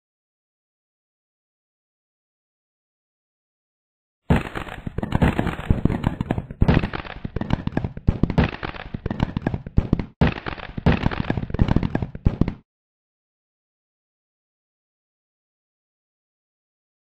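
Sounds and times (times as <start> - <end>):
fireworks bangs and crackles: 4.3 - 12.6.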